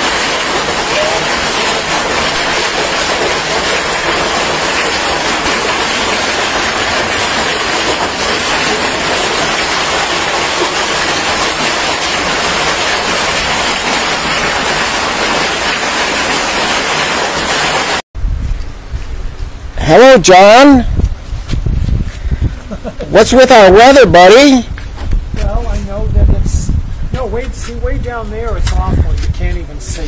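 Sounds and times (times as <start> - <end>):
hail and heavy rain on pavement: 0.0 - 18.0.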